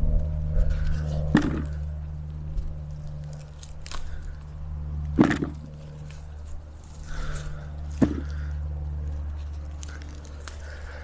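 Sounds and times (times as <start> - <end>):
soil scraping and rustling: 0.0 - 11.0
steady low hum: 0.0 - 11.0
sharp knocks: 5.2 - 5.7, 8.0 - 8.3.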